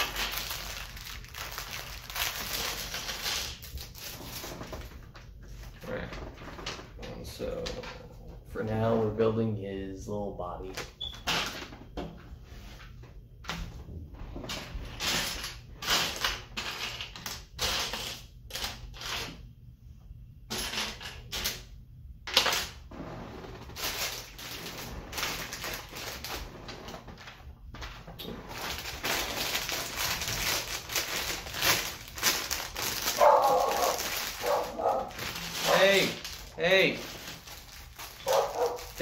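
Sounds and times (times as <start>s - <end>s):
dog whining: 38.2s - 38.8s.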